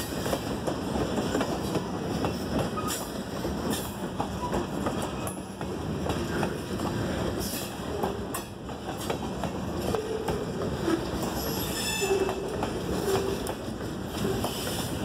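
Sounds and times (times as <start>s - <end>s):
freight train wheels clacking: 0.0s - 15.0s
metallic wheel squeals: 10.9s - 12.4s.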